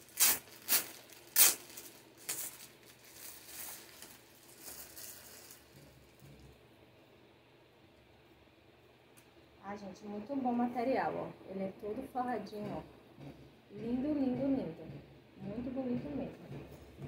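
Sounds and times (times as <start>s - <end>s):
plastic packaging ripping: 0.0s - 6.1s
plastic crinkling: 0.0s - 6.6s.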